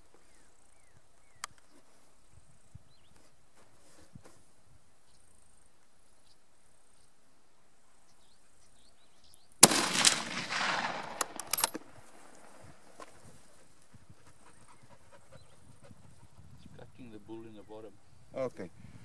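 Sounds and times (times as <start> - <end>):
sharp clicks: 9.6 - 12.6
rifle shot with rolling echo: 9.6 - 13.0.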